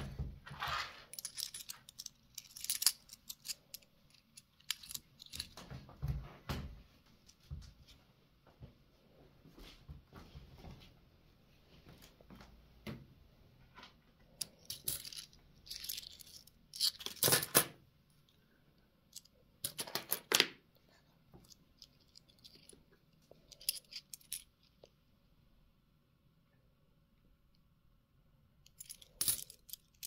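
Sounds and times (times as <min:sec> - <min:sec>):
coins clinking: 0:01.1 - 0:05.5, 0:14.4 - 0:17.7, 0:28.7 - 0:30.0.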